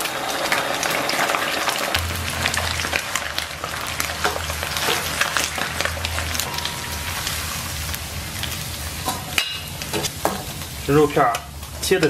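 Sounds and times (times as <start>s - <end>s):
meat deep-frying in hot oil: 0.0s - 12.0s.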